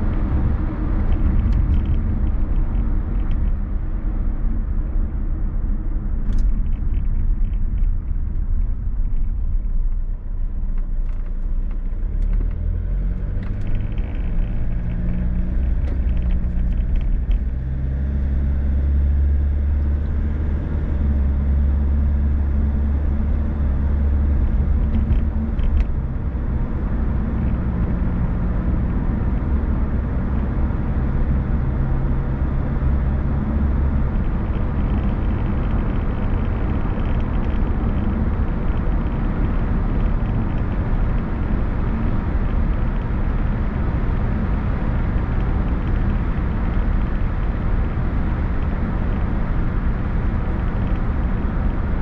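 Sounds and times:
car engine hum: 0:00.0 - 0:52.0
road rumble: 0:00.0 - 0:52.0.

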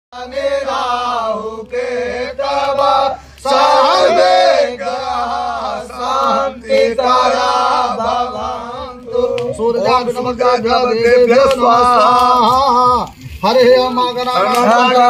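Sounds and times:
man chanting: 0:08.0 - 0:15.0.

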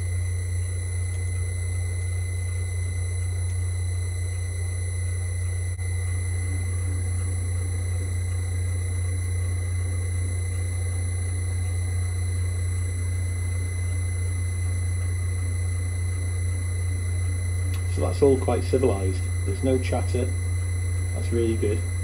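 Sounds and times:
lathe humming with high whine: 0:00.0 - 0:22.0.

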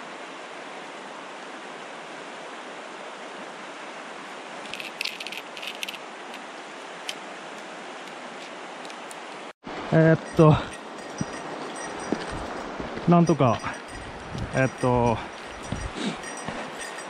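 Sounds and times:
river flowing: 0:00.0 - 0:17.0
fishing gear clicking: 0:04.7 - 0:06.4.

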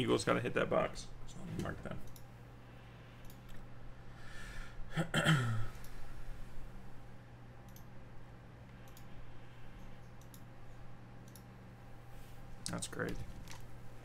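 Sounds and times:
steady low hum: 0:00.0 - 0:14.0
light clicks: 0:10.0 - 0:10.5.

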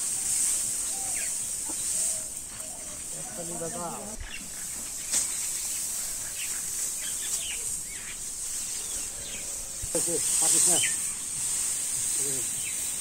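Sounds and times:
bird chirps: 0:12.3 - 0:13.0.

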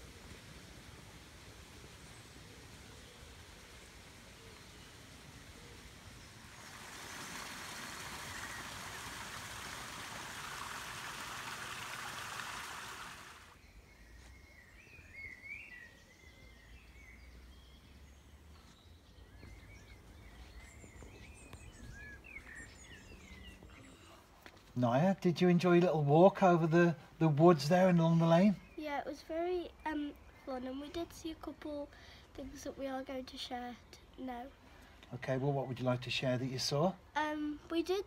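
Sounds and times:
steady rushing hiss: 0:00.0 - 0:13.6
small birds chirping: 0:00.0 - 0:38.0.

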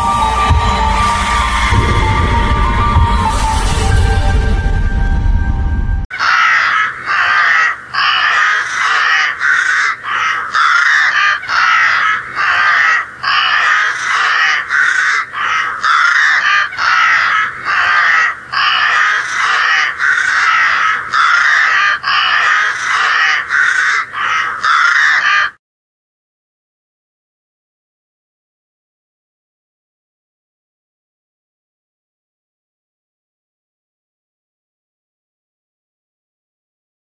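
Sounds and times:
crows cawing: 0:06.1 - 0:25.6.

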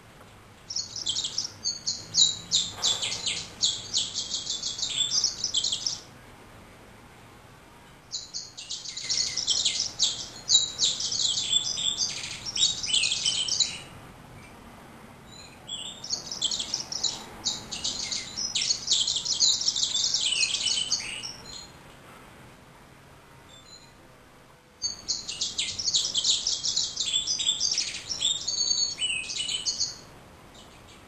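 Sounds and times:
bird singing high varied notes: 0:00.7 - 0:06.1, 0:08.1 - 0:14.0, 0:15.3 - 0:21.8, 0:23.5 - 0:24.0, 0:24.8 - 0:31.0.

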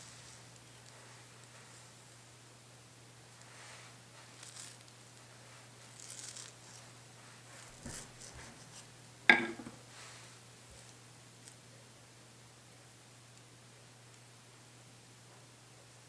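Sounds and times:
knife clacking on cutting board: 0:09.3 - 0:09.8.

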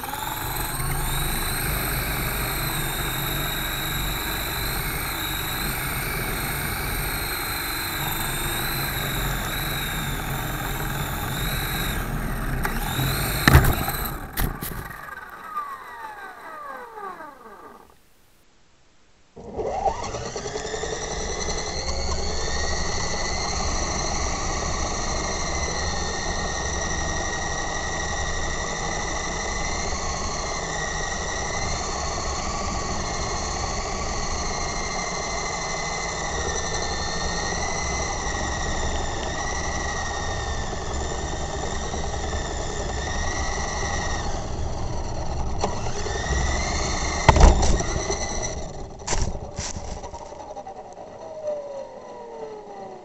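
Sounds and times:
model helicopter motor whine: 0:00.0 - 0:18.0, 0:19.4 - 0:53.0
helicopter landing knock and rattle: 0:10.3 - 0:15.4, 0:46.6 - 0:50.2.

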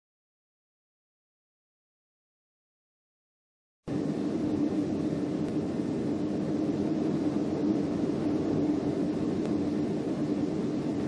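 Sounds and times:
violent wind and rain roaring: 0:03.9 - 0:11.0.

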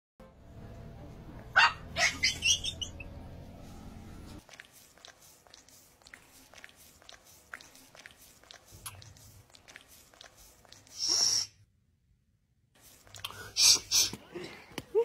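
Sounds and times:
low steady hum: 0:00.2 - 0:10.9
small dog yapping: 0:01.6 - 0:02.8.

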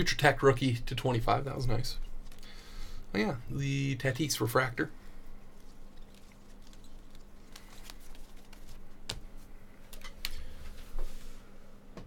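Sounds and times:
cards clicking and tapping: 0:06.2 - 0:09.3.

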